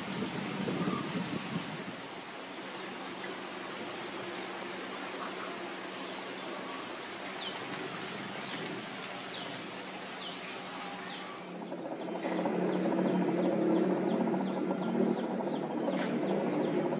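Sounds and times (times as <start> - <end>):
background hiss: 0.0 - 11.6
birds chirping: 0.0 - 16.9
busy outdoor scene: 0.0 - 16.9.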